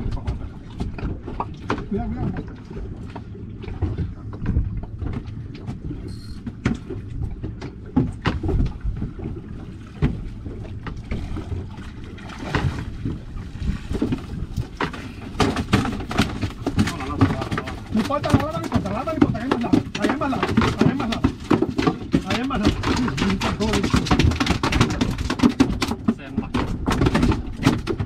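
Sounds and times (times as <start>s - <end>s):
water noise: 0.0s - 28.0s
wind: 0.0s - 28.0s
knocks and thumps on deck: 14.0s - 28.0s.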